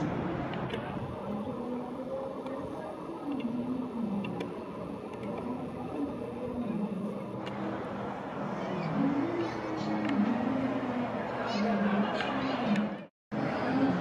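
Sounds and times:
electric train rumble: 0:00.0 - 0:14.0
faint clicks: 0:04.2 - 0:06.1.

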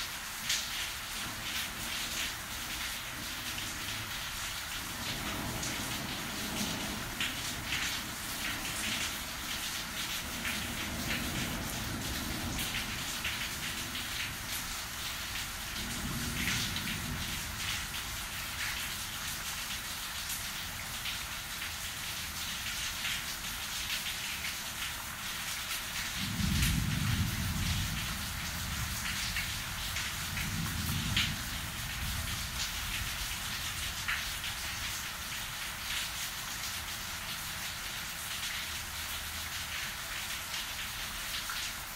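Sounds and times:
steady rain hiss: 0:00.0 - 0:41.9
low thunder rumbles: 0:02.7 - 0:18.9, 0:26.1 - 0:33.9.

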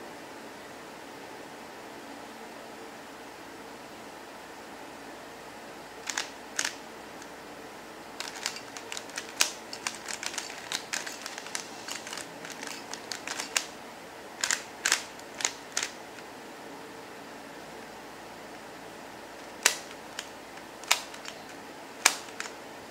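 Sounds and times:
steady hiss: 0:00.0 - 0:22.9
puzzle cube layers clicking: 0:06.1 - 0:06.8, 0:08.2 - 0:13.8, 0:14.4 - 0:16.0, 0:19.4 - 0:22.6.

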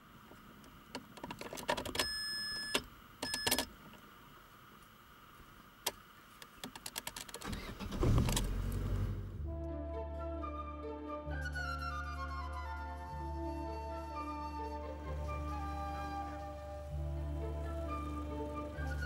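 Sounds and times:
car engine starting and idling: 0:05.5 - 0:09.9, 0:14.4 - 0:19.0
starter motor cranking: 0:06.8 - 0:08.9.

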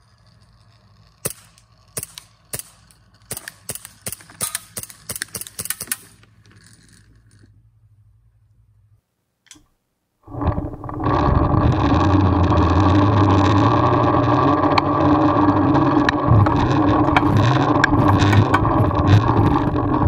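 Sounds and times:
zipline pulley humming: 0:00.0 - 0:03.3, 0:10.2 - 0:20.0
sharp clicks: 0:01.2 - 0:06.3, 0:12.0 - 0:20.0.

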